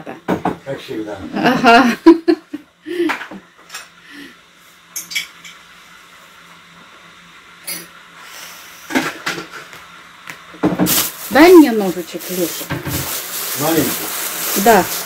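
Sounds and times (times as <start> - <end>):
tableware clinking: 4.9 - 5.6.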